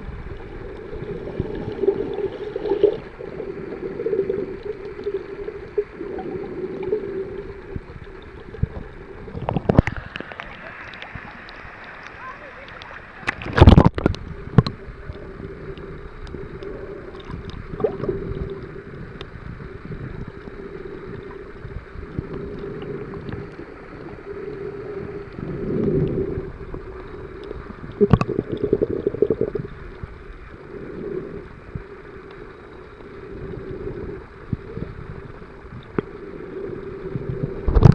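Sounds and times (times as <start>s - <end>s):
muffled underwater rush: 0.0s - 37.9s
water splash: 13.2s - 14.8s.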